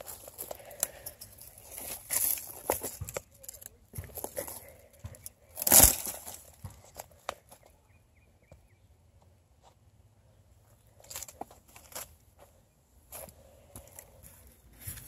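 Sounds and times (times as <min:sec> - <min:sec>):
footsteps crunching dead leaves: 0:00.0 - 0:07.6
dry twigs snapping: 0:05.2 - 0:06.6.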